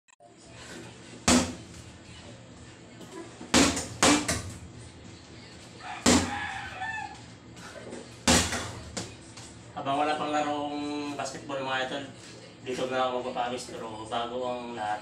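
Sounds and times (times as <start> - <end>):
punches thudding on heavy bag: 1.3 - 1.7, 3.5 - 4.6, 6.0 - 6.4, 8.2 - 9.1.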